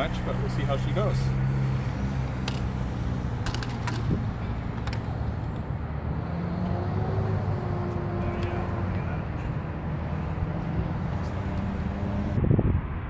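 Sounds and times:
road traffic rumble: 0:00.0 - 0:13.0
sharp clicks: 0:03.4 - 0:04.1.

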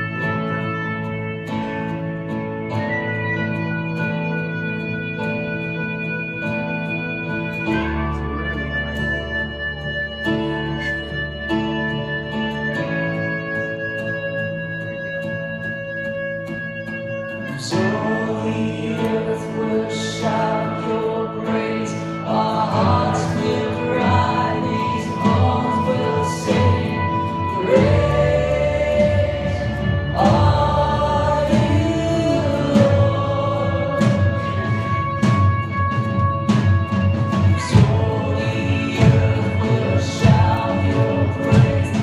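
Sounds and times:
acoustic guitar: 0:00.0 - 0:42.0
worship band playing: 0:00.0 - 0:42.0
person singing: 0:17.4 - 0:35.5, 0:37.2 - 0:42.0.

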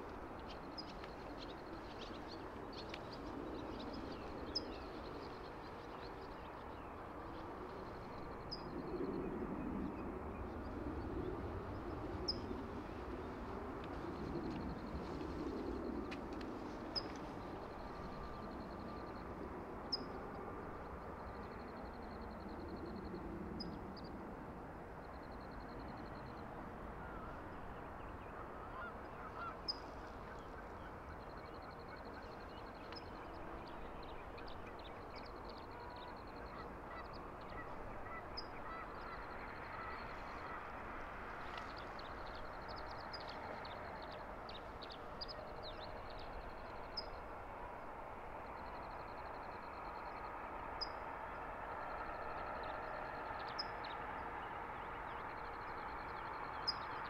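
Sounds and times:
distant honking bird calls: 0:28.6 - 0:29.9.

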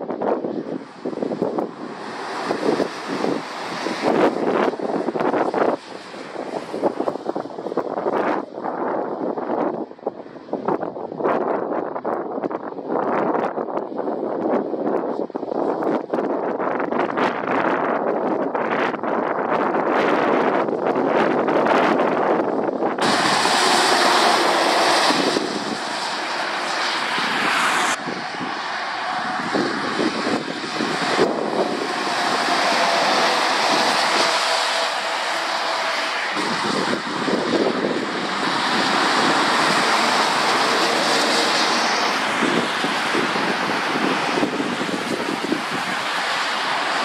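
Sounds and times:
diesel engines droning: 0:00.0 - 0:11.2, 0:19.5 - 0:47.0
tyres hissing on wet road: 0:00.4 - 0:10.6, 0:20.0 - 0:47.0.

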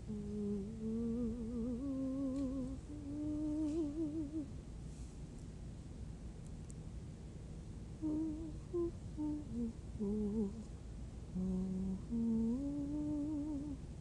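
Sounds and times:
woman humming: 0:00.0 - 0:04.5, 0:08.0 - 0:10.7, 0:11.3 - 0:13.8.

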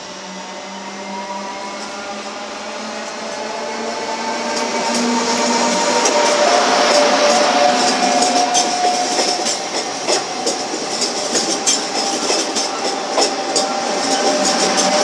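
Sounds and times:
train wheels clattering over rail joints: 0:04.6 - 0:15.0.

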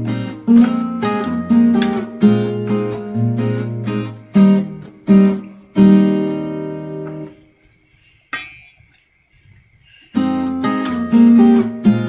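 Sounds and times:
strummed acoustic guitar chords: 0:00.0 - 0:07.4, 0:10.2 - 0:12.0.

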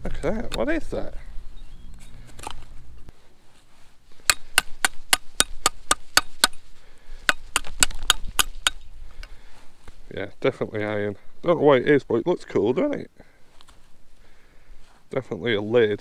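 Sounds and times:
sharp knocks: 0:04.2 - 0:06.6, 0:07.2 - 0:08.8.

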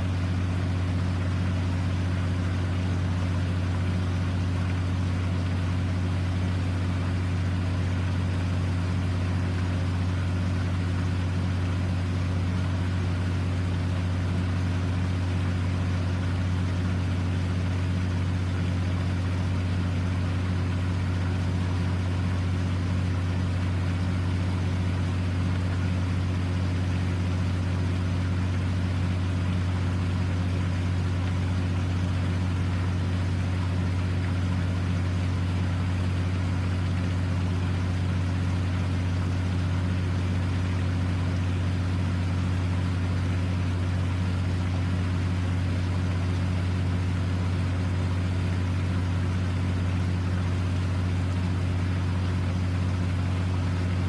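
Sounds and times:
boat engine idling: 0:00.0 - 0:54.0.

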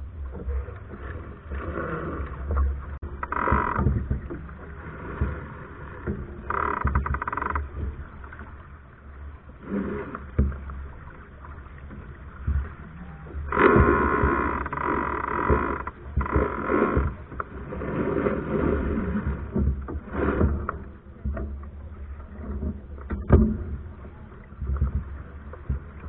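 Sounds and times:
water rushing past hull: 0:00.0 - 0:26.0.

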